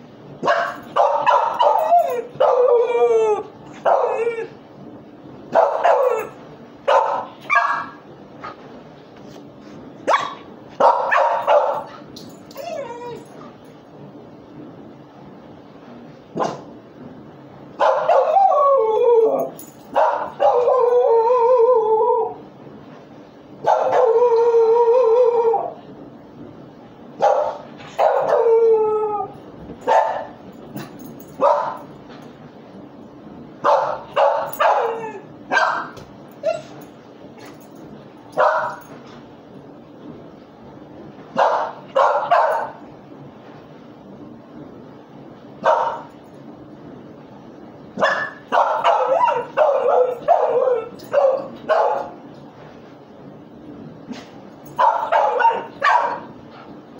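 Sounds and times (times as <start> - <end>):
dog howling and whining: 0.6 - 4.7, 5.8 - 6.4, 12.5 - 13.4, 17.9 - 22.5, 23.7 - 25.8, 27.9 - 30.3, 34.2 - 36.9, 48.1 - 52.1.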